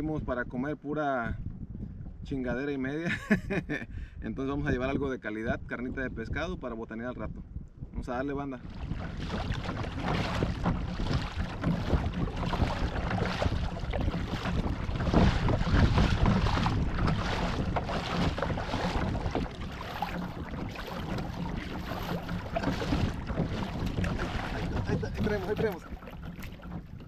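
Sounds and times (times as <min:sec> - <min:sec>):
wind buffeting microphone: 0:00.0 - 0:27.0
water slapping hull: 0:08.4 - 0:27.0
paddle splashing: 0:08.6 - 0:27.0.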